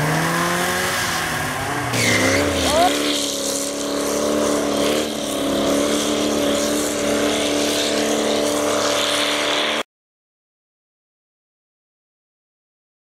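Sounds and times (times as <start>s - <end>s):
engine running hard: 0.0s - 9.8s.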